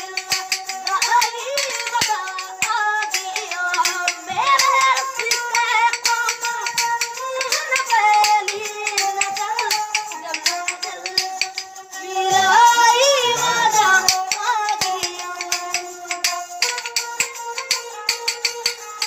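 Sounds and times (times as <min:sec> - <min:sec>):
person singing: 0:00.0 - 0:16.8
bowed string instrument melody: 0:00.0 - 0:19.0
hand-held clappers clicking: 0:00.0 - 0:19.0.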